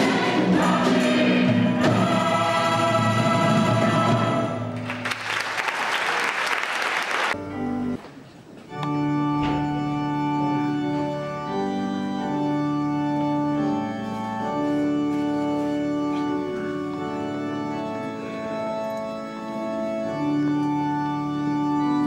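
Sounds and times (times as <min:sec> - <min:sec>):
choral singing: 0:00.0 - 0:04.8
keyboard playing organ-like chords: 0:00.0 - 0:04.8, 0:07.3 - 0:22.0
audience applause: 0:04.8 - 0:07.4.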